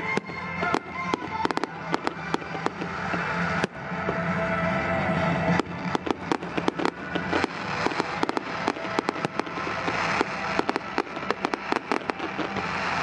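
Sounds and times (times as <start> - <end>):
firework shells bursting: 5.5 - 13.0.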